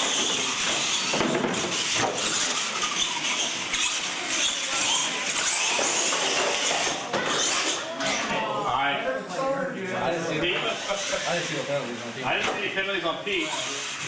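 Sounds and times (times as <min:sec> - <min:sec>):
tyre noise on concrete: 0:00.0 - 0:08.4
toy car electric motors whining: 0:00.0 - 0:08.7, 0:10.5 - 0:12.4, 0:13.2 - 0:14.0.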